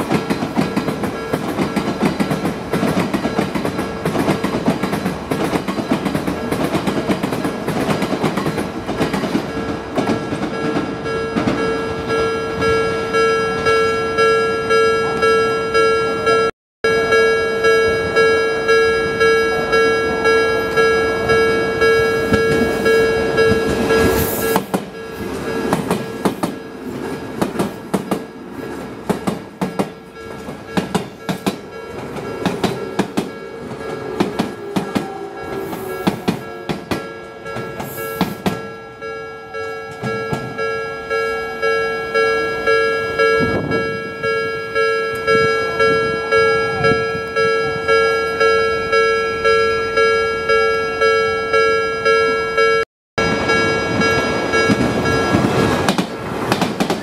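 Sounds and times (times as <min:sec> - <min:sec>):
train wheels clattering: 0:00.0 - 0:11.8, 0:22.2 - 0:38.7, 0:53.4 - 0:57.0
level crossing alarm clanging: 0:00.0 - 0:57.0.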